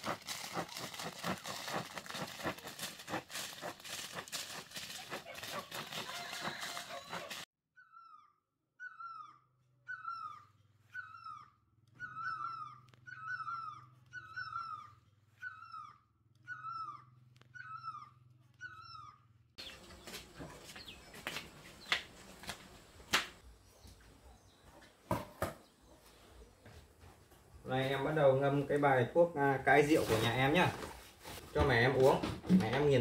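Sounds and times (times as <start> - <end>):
animal crying: 5.1 - 19.4.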